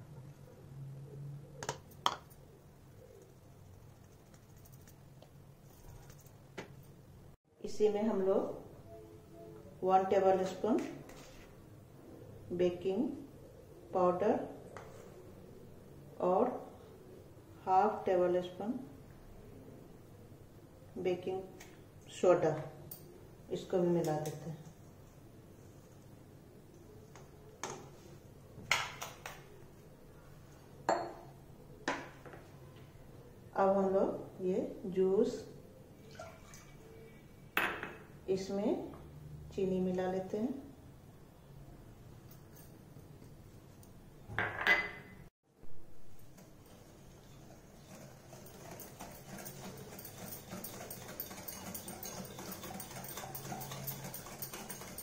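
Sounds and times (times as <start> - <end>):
dishes knocking and clinking: 30.9 - 31.2, 44.3 - 45.1
whisk clicking against glass bowl: 48.3 - 55.0.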